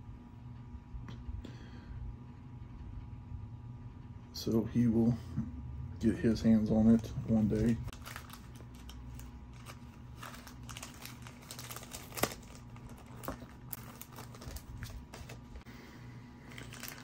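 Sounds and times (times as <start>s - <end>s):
low electrical hum: 0.0s - 17.0s
plastic sleeves crinkling: 6.8s - 15.6s, 16.4s - 17.0s.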